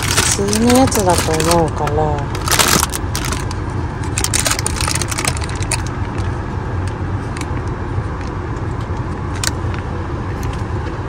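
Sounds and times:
snack packet crinkling: 0:00.0 - 0:06.2
car cabin rumble: 0:00.0 - 0:11.0.

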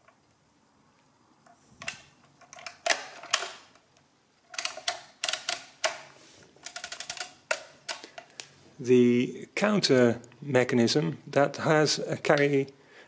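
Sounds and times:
mechanical calculator clicking: 0:04.5 - 0:06.0, 0:06.6 - 0:08.0.

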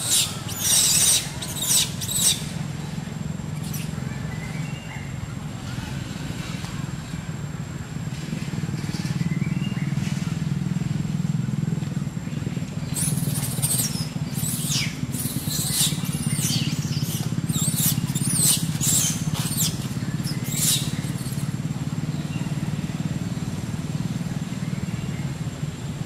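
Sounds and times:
baby monkey screaming: 0:00.0 - 0:02.5, 0:12.9 - 0:21.4
engine humming: 0:00.0 - 0:26.0.

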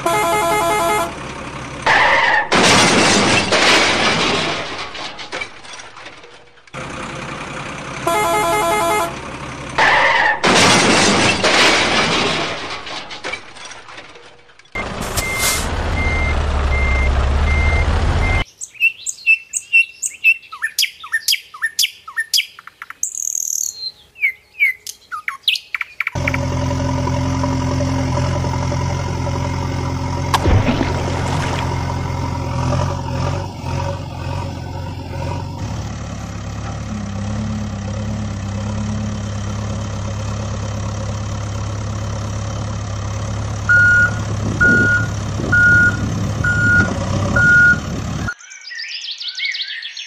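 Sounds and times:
horn-like tone: 0:00.0 - 0:01.2, 0:08.0 - 0:09.2
truck engine running: 0:00.0 - 0:18.4, 0:26.2 - 0:48.4
birds chirping: 0:18.3 - 0:26.2.

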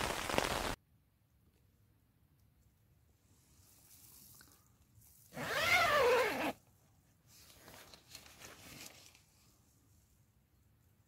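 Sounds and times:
soft rustle: 0:03.1 - 0:11.0.

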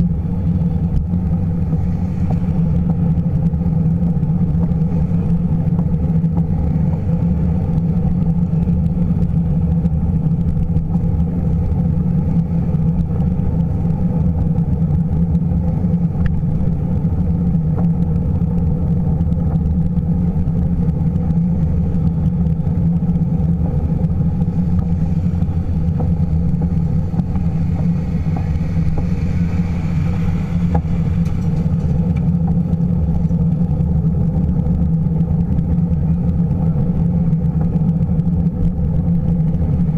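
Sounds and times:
bicycle rolling noise: 0:00.0 - 0:39.9
wind rumble on microphone: 0:00.0 - 0:39.9.

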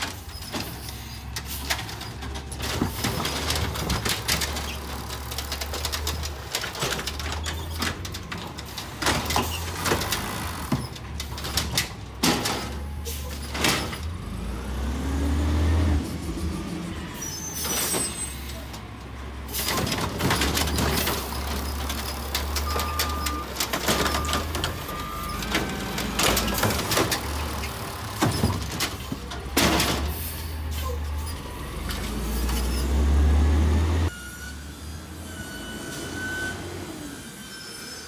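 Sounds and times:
clanks and bangs of cart: 0:00.0 - 0:14.2, 0:17.6 - 0:31.0
garbage truck diesel engine: 0:00.0 - 0:38.0
hydraulic arm: 0:08.8 - 0:11.7.

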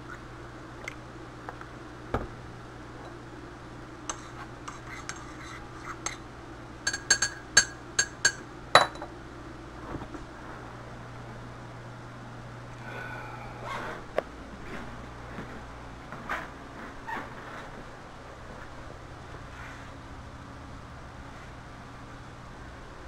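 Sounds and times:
spoon clinking in ceramic mug: 0:06.9 - 0:09.1.

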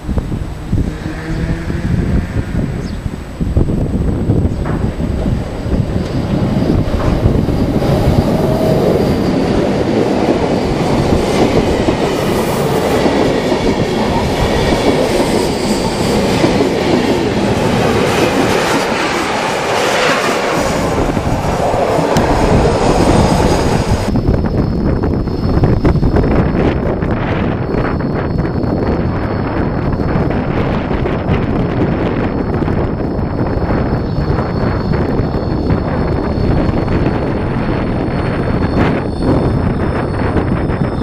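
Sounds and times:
train wheels rumbling and clattering: 0:00.0 - 0:41.0
faint high wheel squeal: 0:33.8 - 0:41.0.

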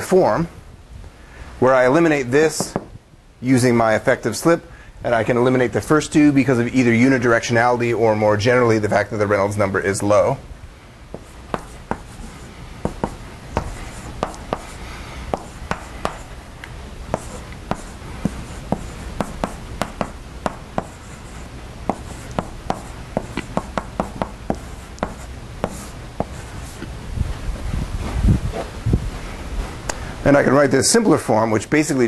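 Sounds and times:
steady low hum: 0:00.0 - 0:32.0
chalk tapping and scratching: 0:11.1 - 0:16.4, 0:17.1 - 0:26.9.

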